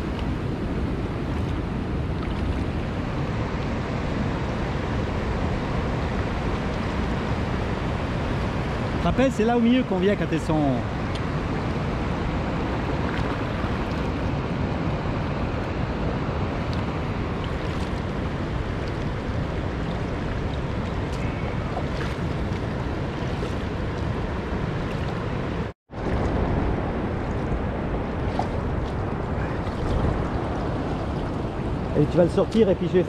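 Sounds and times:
water lapping around kayak: 0:00.0 - 0:09.0, 0:10.8 - 0:32.8
wind buffeting microphone: 0:10.9 - 0:33.0.

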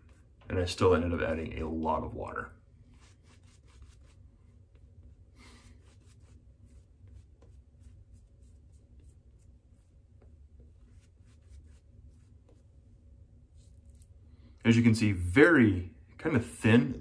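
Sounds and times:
shaving brush swishing lather: 0:02.9 - 0:14.2.

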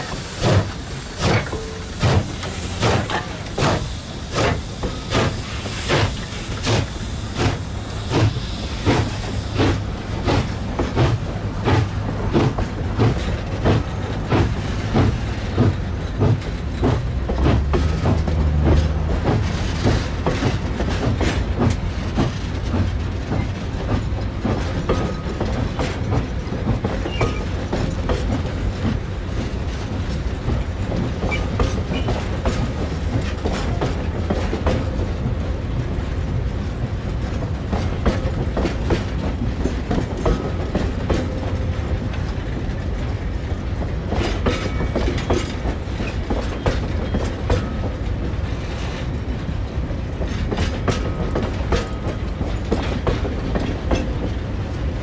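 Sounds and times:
train rumble: 0:00.0 - 0:55.0
wagon wheels clicking over rail joints: 0:43.8 - 0:54.5.

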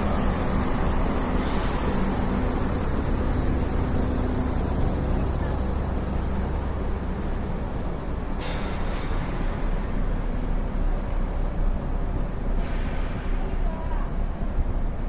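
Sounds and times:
large engine idling: 0:00.0 - 0:15.0
street traffic noise: 0:00.0 - 0:15.0.

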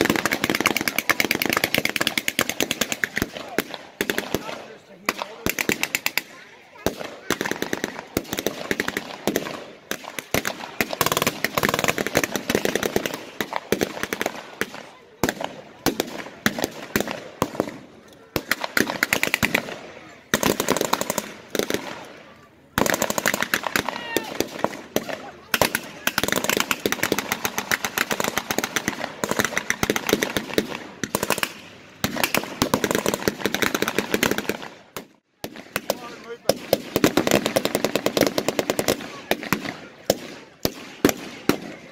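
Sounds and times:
blank gunshots: 0:00.0 - 0:22.2, 0:22.8 - 0:41.9.

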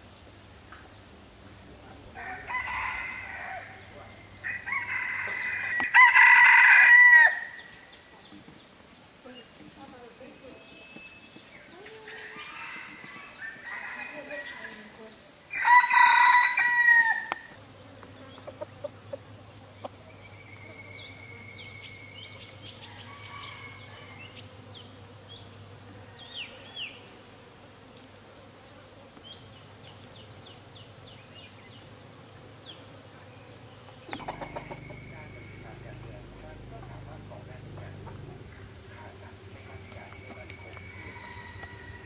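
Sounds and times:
insect drone: 0:00.0 - 0:42.0
rooster crowing: 0:02.1 - 0:07.7, 0:12.1 - 0:14.8, 0:15.5 - 0:17.6, 0:22.8 - 0:24.4, 0:34.1 - 0:38.6, 0:40.2 - 0:42.0.

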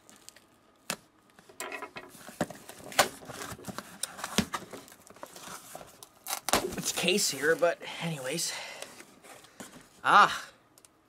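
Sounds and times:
packaging rustling: 0:02.1 - 0:07.8.

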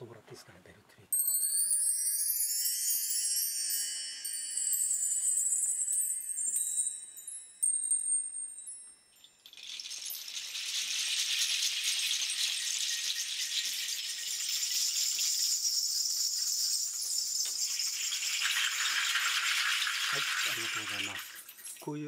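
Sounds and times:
bar chimes ringing: 0:01.1 - 0:10.4
seed pod and shell rattles: 0:01.2 - 0:22.0.

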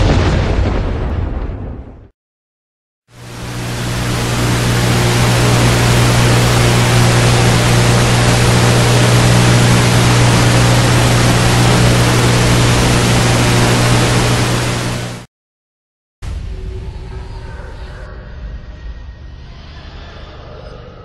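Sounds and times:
low hum: 0:03.1 - 0:15.3
static hiss: 0:03.2 - 0:15.3.

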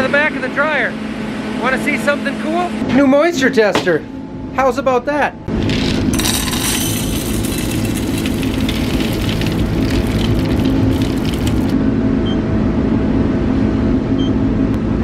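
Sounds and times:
corn kernels pouring into metal hopper: 0:05.6 - 0:11.8.

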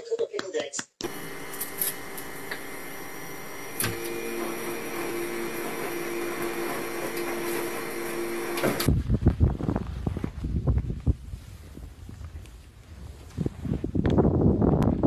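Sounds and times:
machine whirring drone: 0:01.0 - 0:08.9.

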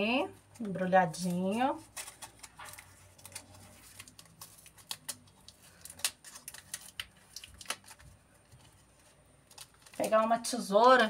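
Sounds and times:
paper wrapping crackling: 0:00.3 - 0:11.0.

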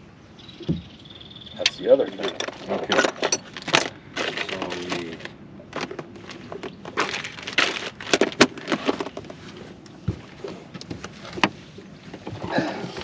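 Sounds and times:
items rattling in plastic box: 0:02.2 - 0:09.3.

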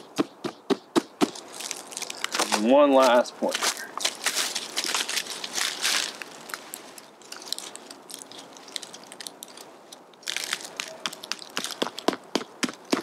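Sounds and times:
dry leaves crunching: 0:01.2 - 0:13.0.

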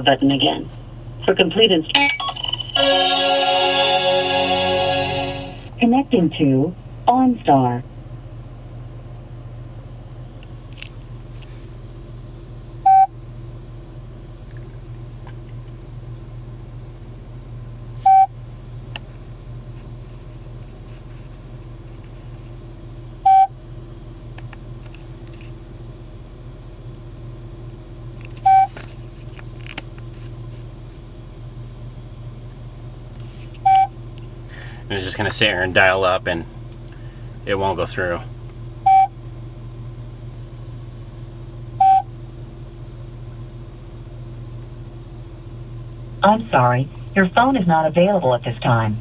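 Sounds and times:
short connecting beep: 0:01.9 - 0:03.1
low hum: 0:02.0 - 0:06.4.

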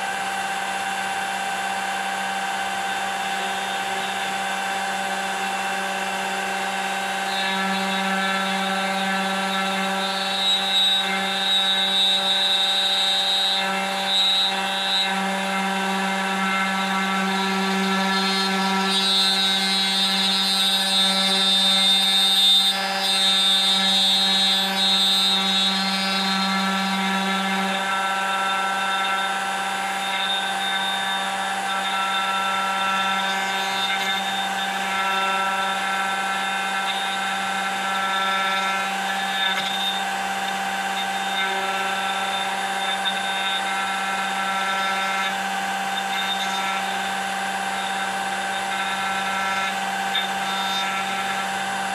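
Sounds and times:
bit cutting into wood: 0:00.0 - 0:51.9
router motor running: 0:00.0 - 0:51.9.

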